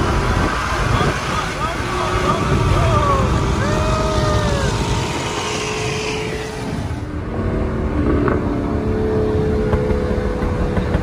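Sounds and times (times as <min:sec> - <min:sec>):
road noise hiss: 0:00.0 - 0:07.6
car engine drone: 0:00.0 - 0:11.0.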